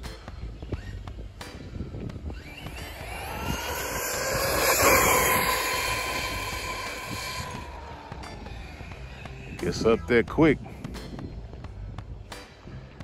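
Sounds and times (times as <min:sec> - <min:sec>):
rc car motor whine passing: 0:02.3 - 0:09.1.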